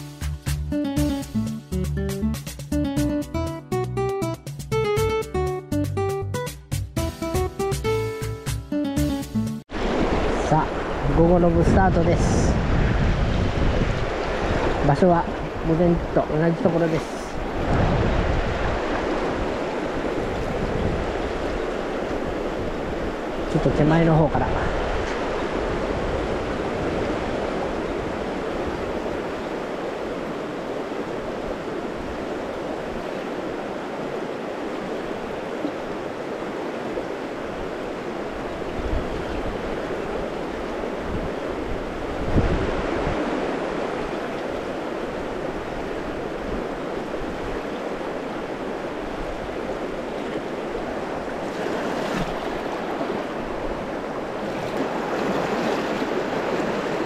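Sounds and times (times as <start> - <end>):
river rushing over stones: 9.7 - 12.3, 13.4 - 24.7, 25.3 - 57.0.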